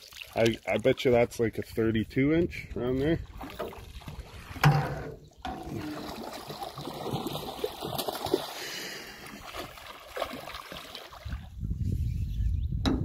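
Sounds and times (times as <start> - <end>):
water splashing against boat: 3.0 - 11.6.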